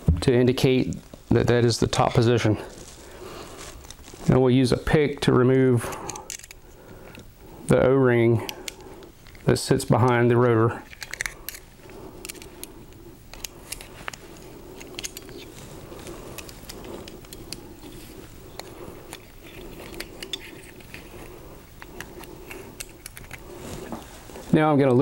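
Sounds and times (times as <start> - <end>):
metal pick clicking and scraping: 5.8 - 7.3, 8.4 - 23.4.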